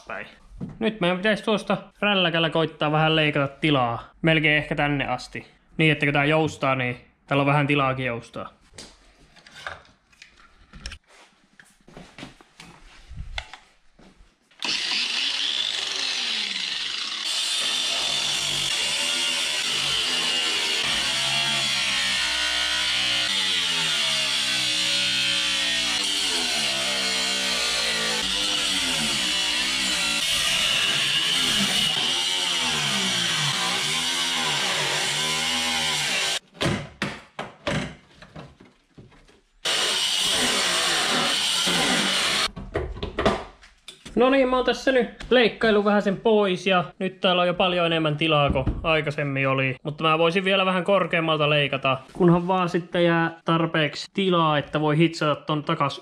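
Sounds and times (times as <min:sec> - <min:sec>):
angle grinder cutting steel: 0:14.6 - 0:36.4, 0:39.6 - 0:42.5.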